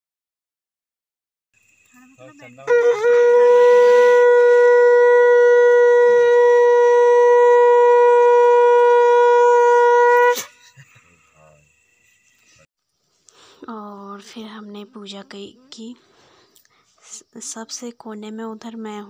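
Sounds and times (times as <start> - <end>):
conch shell blown: 2.6 - 10.8.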